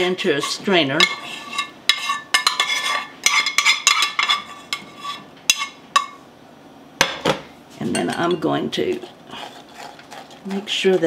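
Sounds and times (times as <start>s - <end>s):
metal cookware clinking on strainer: 7.9s - 8.6s
sauce poured and scraped: 9.0s - 11.0s.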